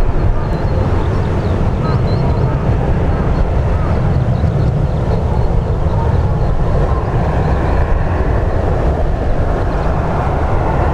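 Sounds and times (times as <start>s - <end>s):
jet engines rumbling: 0.0s - 10.9s.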